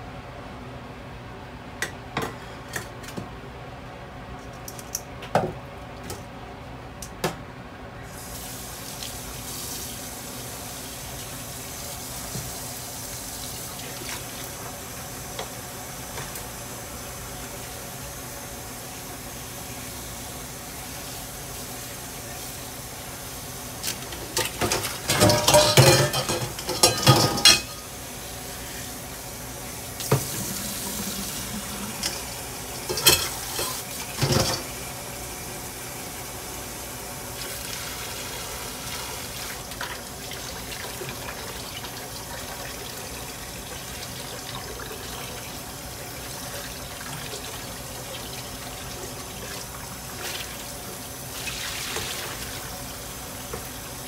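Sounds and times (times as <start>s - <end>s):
pan and strainer clattering: 24.1s - 27.9s, 30.0s - 34.7s.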